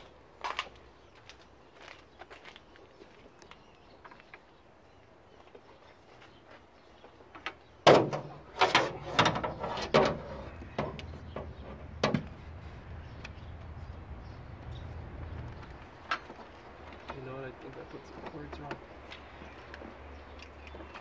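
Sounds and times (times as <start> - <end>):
hard knocks on metal parts: 7.8 - 10.2, 10.8 - 12.4
low steady rumble: 10.2 - 16.0.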